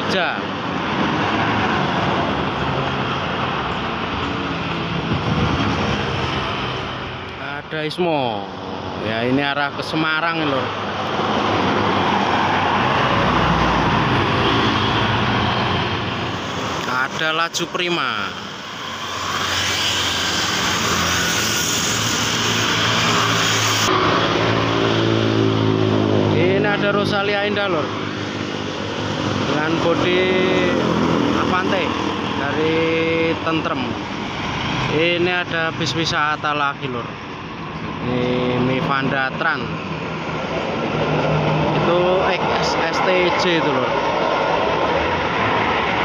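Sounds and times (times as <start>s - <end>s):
bus diesel engine: 0.0s - 46.0s
tyre and road noise: 0.0s - 46.0s
motor scooters passing: 10.7s - 32.4s, 39.8s - 46.0s.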